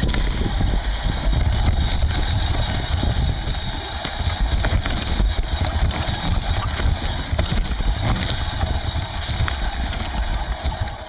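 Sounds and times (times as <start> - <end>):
bike rattling and knocking: 0.0 - 11.0
tyres rumbling on dirt: 0.0 - 11.0
wind on microphone: 0.0 - 11.0.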